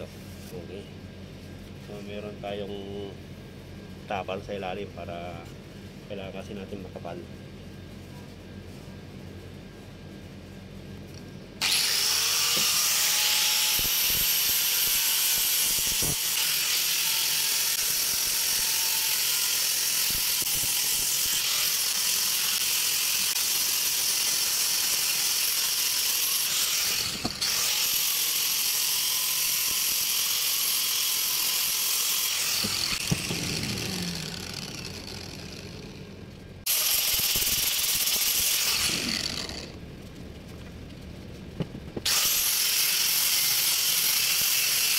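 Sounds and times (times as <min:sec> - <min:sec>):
angle grinder sanding wood: 0:11.6 - 0:36.1, 0:36.7 - 0:39.7, 0:42.0 - 0:44.9.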